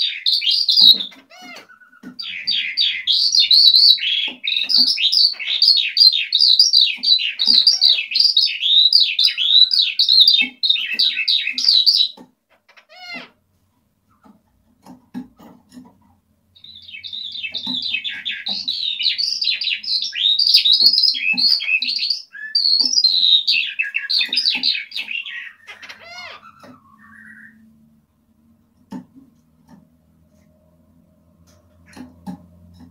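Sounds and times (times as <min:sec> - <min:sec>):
skylark warbling song: 0:00.0 - 0:01.2, 0:02.2 - 0:12.2, 0:16.6 - 0:27.7.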